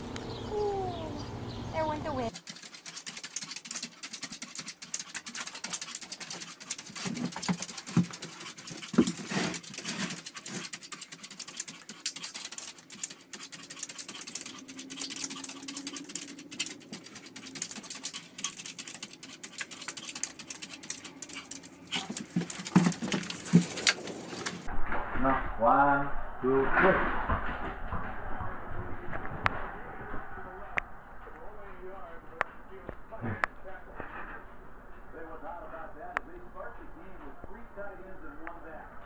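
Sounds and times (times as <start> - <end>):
puppy scratching at glass door: 2.3 - 24.7.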